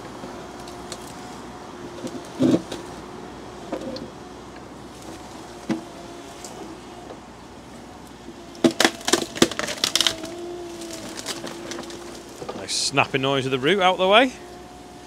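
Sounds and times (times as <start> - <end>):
digger engine running: 0.0 - 15.0
tree root snapping: 8.5 - 12.6.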